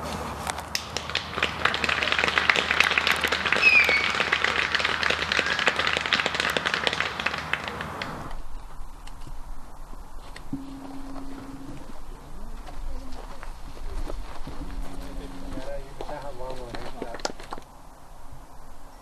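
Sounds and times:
crowd clapping: 0.7s - 8.4s.

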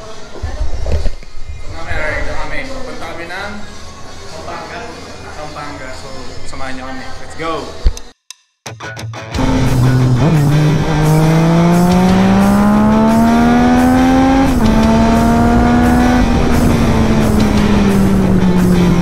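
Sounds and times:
music with steady beat: 7.8s - 19.0s
motorcycle engine accelerating: 9.4s - 19.0s.

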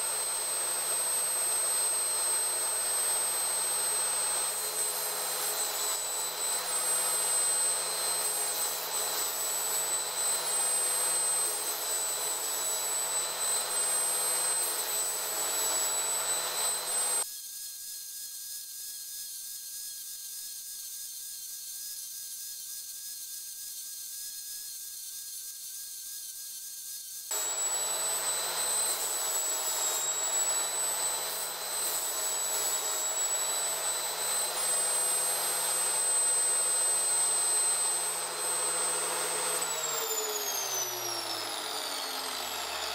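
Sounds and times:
angle grinder whining: 0.0s - 17.2s, 27.3s - 42.9s.

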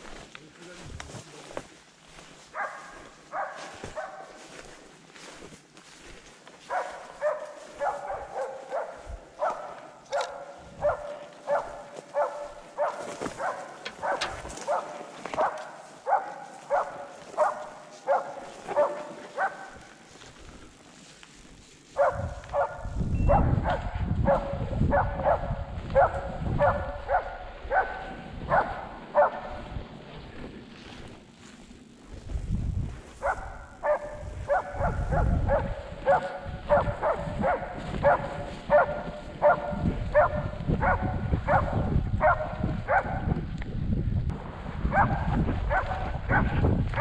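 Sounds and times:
dog barking: 2.5s - 4.6s, 6.6s - 20.0s, 22.0s - 29.6s, 33.2s - 43.3s, 44.9s - 47.0s
low rumbling noise: 42.8s - 47.0s.

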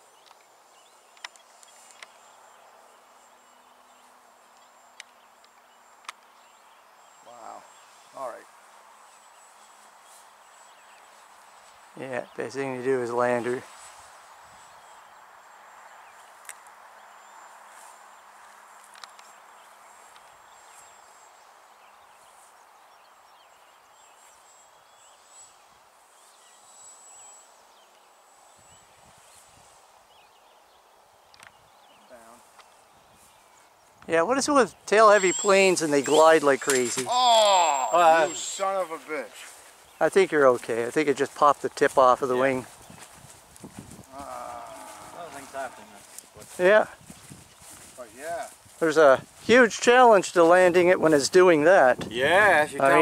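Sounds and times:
soft hiss: 0.0s - 53.0s
high-pitched insect drone: 24.4s - 27.6s, 34.9s - 38.9s
small bird chirps: 34.7s - 40.0s.

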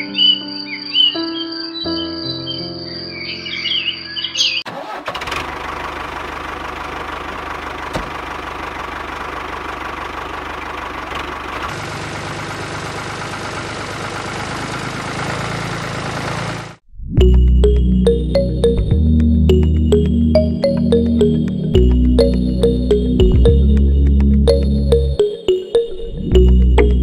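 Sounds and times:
tractor diesel engine clattering: 4.7s - 16.8s.

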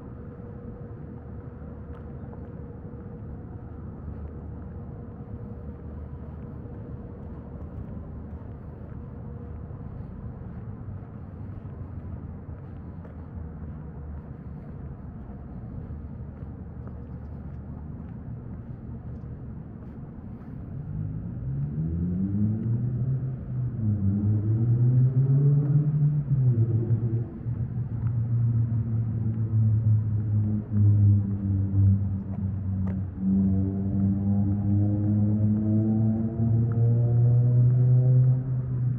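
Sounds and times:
low background rumble: 0.0s - 38.9s
vehicle engine speeding up: 20.8s - 38.9s.

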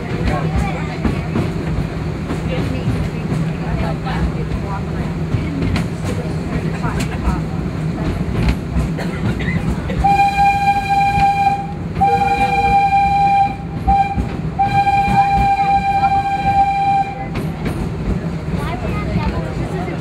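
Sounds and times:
train rumbling: 0.0s - 20.0s
steam locomotive whistle: 10.0s - 17.4s.

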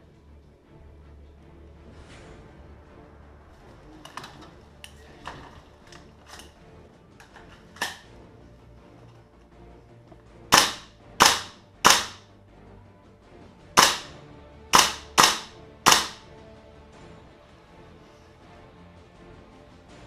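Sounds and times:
airsoft rifle shots: 10.5s - 12.2s, 13.8s - 16.3s.

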